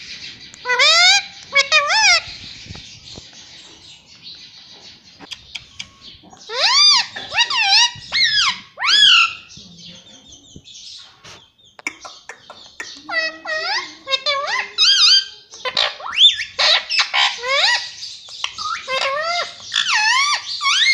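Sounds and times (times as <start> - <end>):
parakeet squawking: 0.6 - 2.3, 6.5 - 9.5, 11.9 - 20.9.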